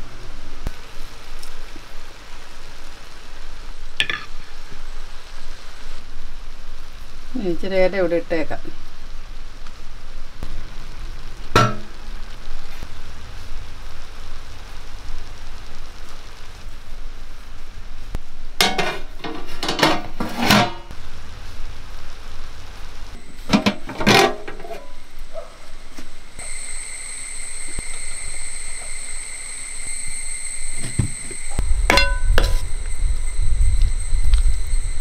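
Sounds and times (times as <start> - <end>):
pot sizzling: 0.0 - 35.0
metal knocking against pot: 4.0 - 4.3, 11.6 - 11.9, 31.9 - 32.6.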